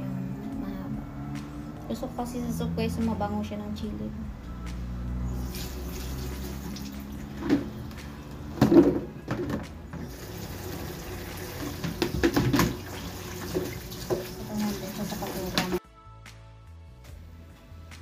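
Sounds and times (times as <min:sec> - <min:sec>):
plastic colander clattering: 0:08.6 - 0:10.1, 0:11.5 - 0:15.8
tap running into sink: 0:08.6 - 0:15.8.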